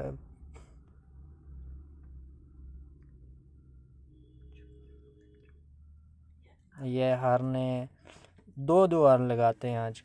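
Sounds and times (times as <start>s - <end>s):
faint low rumble: 0.0s - 6.8s.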